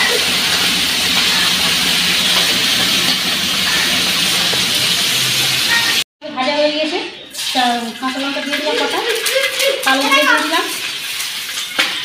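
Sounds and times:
fish sizzling in hot oil: 0.0s - 6.0s.

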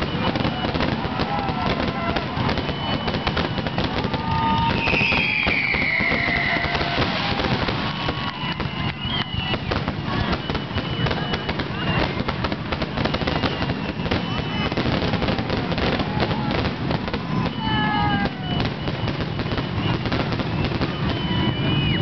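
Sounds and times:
fireworks bursting and crackling: 0.0s - 22.0s
high whistle sliding down: 2.5s - 12.2s.

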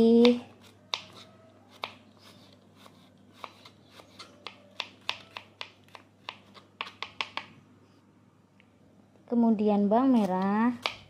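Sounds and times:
knife tapping cutting board: 4.4s - 7.5s.

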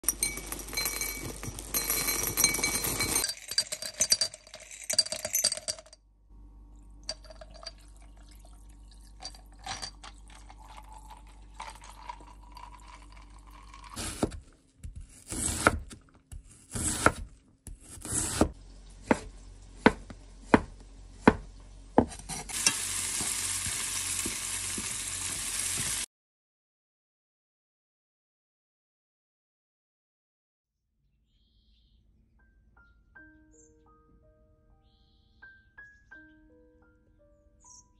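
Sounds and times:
knife chopping on wooden board: 14.0s - 22.6s
steady hiss: 22.5s - 26.1s.

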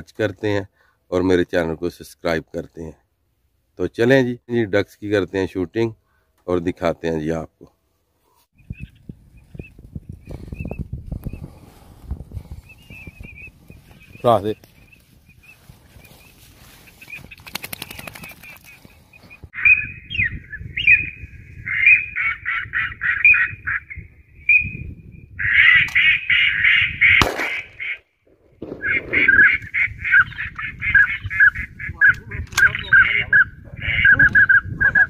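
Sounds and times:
ducks quacking: 21.7s - 23.8s, 25.4s - 28.0s, 28.8s - 35.0s.

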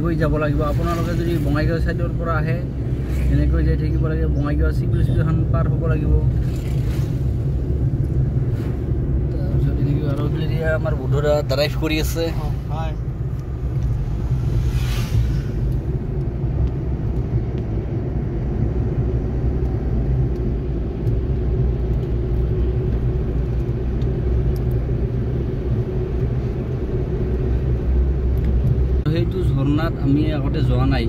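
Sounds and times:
car engine and road rumble: 0.0s - 31.0s
short rush of noise: 13.9s - 16.1s.

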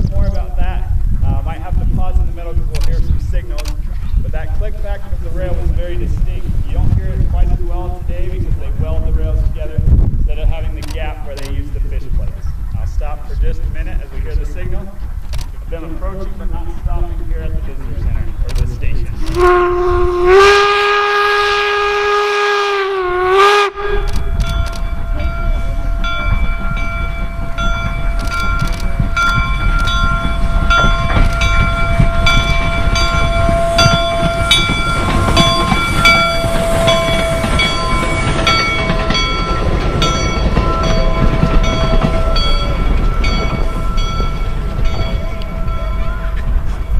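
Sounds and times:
locomotive rumble and clatter: 0.0s - 46.9s
steam whistle blast: 19.3s - 24.2s, 30.3s - 38.2s
locomotive bell ringing: 23.3s - 46.9s.

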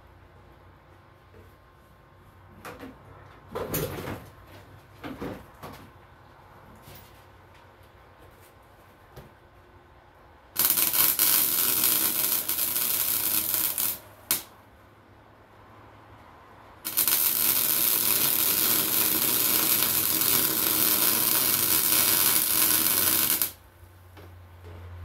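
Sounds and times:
welding arc crackling: 10.6s - 14.5s, 16.8s - 23.6s.

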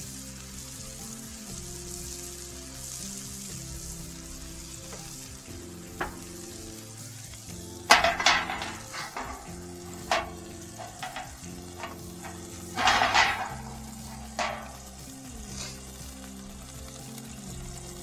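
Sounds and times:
burgers sizzling: 0.0s - 18.0s
metal pan clattering on griddle: 4.9s - 6.7s, 7.8s - 15.4s
metal knocking and clanking: 6.0s - 6.4s, 7.9s - 15.0s.

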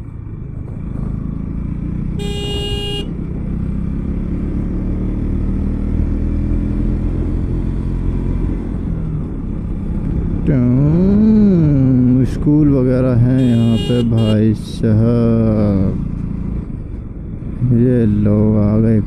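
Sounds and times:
vehicle horn toot: 2.2s - 3.2s, 13.4s - 14.4s.

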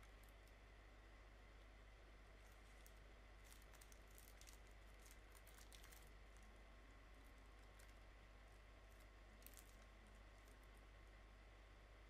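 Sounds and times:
plastic bags crinkling: 2.5s - 6.4s, 9.4s - 9.8s.

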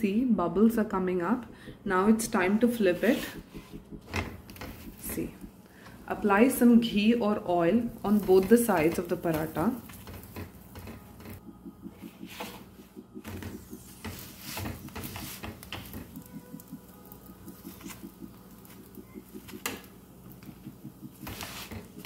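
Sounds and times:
steady low hum: 0.0s - 22.0s
flatbread sizzling in ghee: 7.3s - 10.8s.

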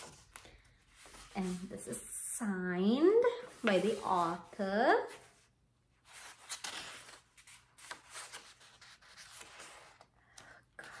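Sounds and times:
book pages turning: 6.1s - 11.0s.

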